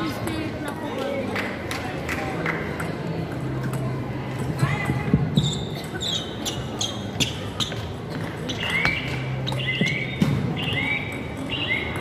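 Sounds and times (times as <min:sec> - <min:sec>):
shoes squeaking on floor: 0:05.3 - 0:12.0.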